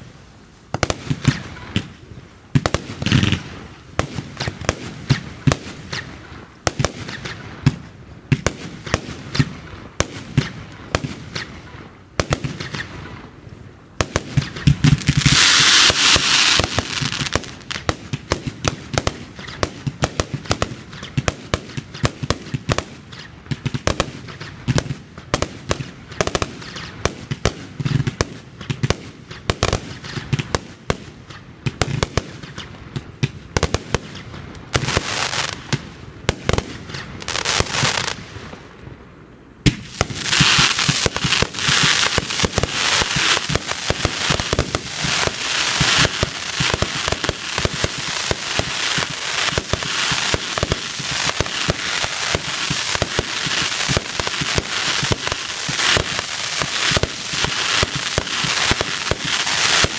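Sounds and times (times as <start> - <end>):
fireworks launch bangs and bursts: 0.0 - 39.0, 39.6 - 59.9
loud rushing hiss: 14.8 - 18.2, 36.4 - 38.6, 39.7 - 59.9.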